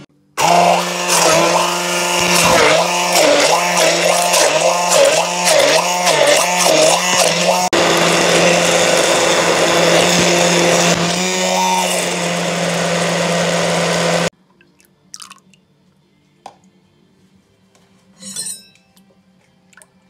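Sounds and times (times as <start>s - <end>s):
immersion blender running: 0.0s - 14.3s.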